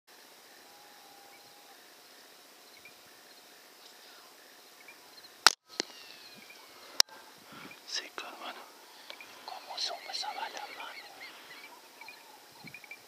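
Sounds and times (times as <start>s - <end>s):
faint background hiss: 0.1s - 13.0s
faint chirps: 2.6s - 13.0s.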